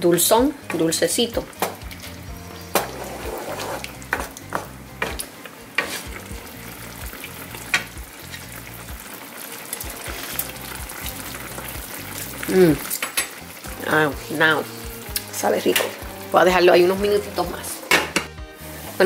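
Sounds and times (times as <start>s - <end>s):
chicken sizzling in sauce: 0.0s - 19.0s
spoon knocking against pan: 4.1s - 5.2s, 17.9s - 18.4s.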